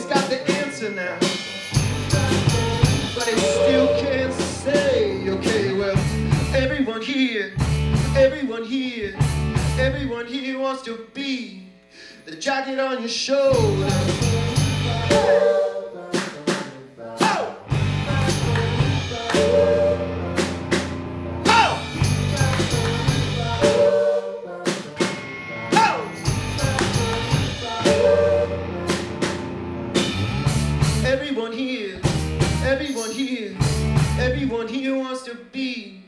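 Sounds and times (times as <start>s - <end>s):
electric guitars: 0.0s - 6.7s, 7.6s - 8.2s, 9.1s - 10.1s, 13.5s - 15.7s, 17.6s - 24.2s, 24.8s - 31.1s
drum kit: 0.0s - 6.8s, 7.6s - 8.4s, 9.2s - 10.0s, 13.5s - 15.5s, 16.1s - 24.0s, 24.6s - 31.3s, 32.0s - 34.5s
electric bass: 1.6s - 6.9s, 7.6s - 8.4s, 9.0s - 10.2s, 13.5s - 15.4s, 17.6s - 24.0s, 25.0s - 31.3s, 32.0s - 32.9s, 33.6s - 34.6s.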